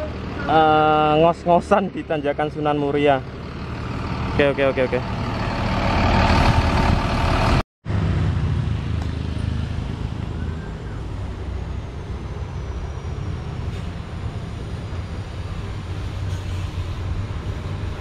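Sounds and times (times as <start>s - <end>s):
diesel bus engine idling: 0.0s - 7.6s
bus engine low rumble: 0.0s - 18.0s.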